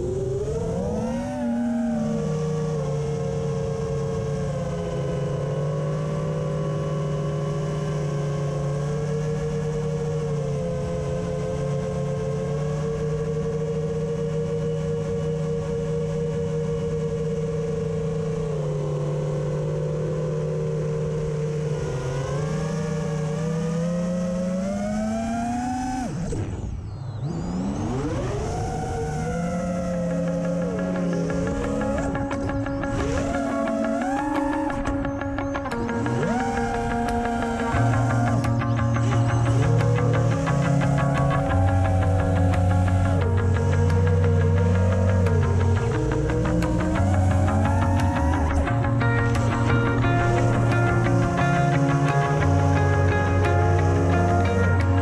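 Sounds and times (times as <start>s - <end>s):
quadcopter motors whining: 0.0s - 55.0s.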